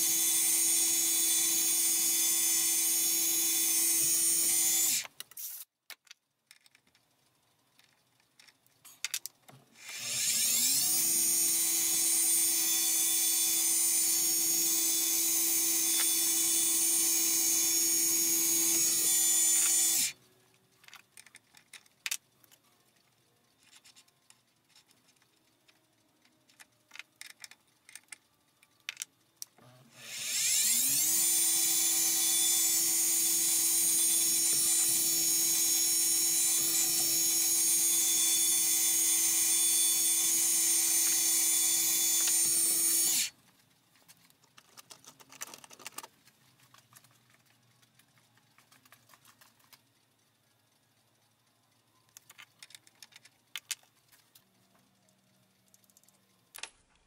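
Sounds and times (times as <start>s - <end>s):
spindle motor drilling: 0.0s - 5.6s, 9.8s - 20.2s, 29.9s - 43.4s.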